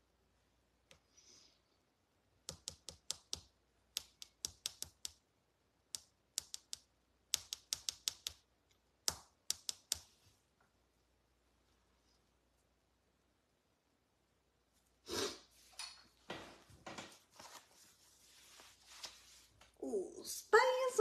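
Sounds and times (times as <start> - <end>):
fingernails tapping touchscreen: 2.5 - 5.2, 6.0 - 8.4, 9.0 - 10.2.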